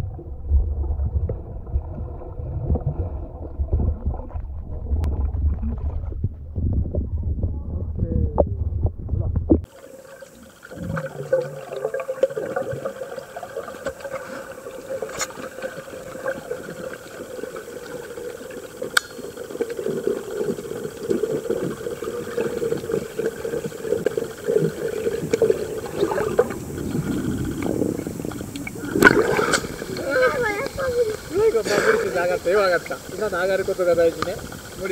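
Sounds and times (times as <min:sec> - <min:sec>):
muffled underwater noise: 0:04.2 - 0:34.9
faint crackles: 0:09.6 - 0:34.9.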